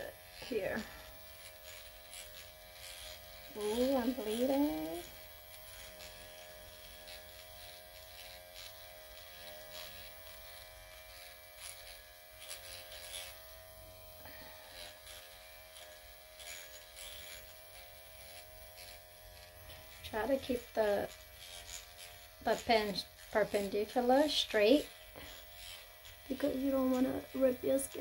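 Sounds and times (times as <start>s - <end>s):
microneedling pen buzzing: 0.0s - 28.0s.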